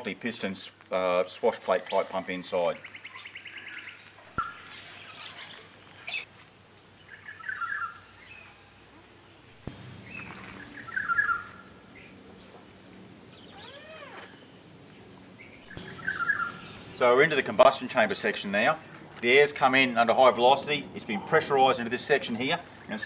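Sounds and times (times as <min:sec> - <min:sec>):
birds chirping: 0:01.4 - 0:06.3, 0:06.9 - 0:23.0
whistled bird notes: 0:10.0 - 0:12.2, 0:15.4 - 0:17.0.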